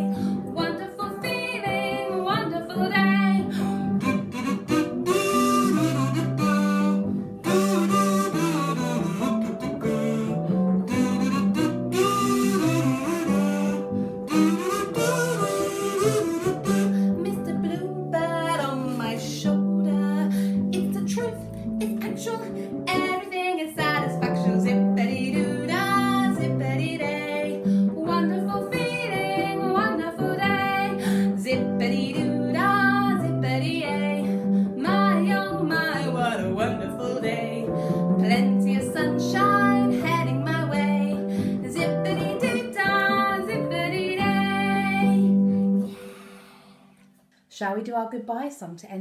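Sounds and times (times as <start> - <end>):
woman singing: 0.0 - 45.4
instrumental accompaniment: 0.0 - 47.3.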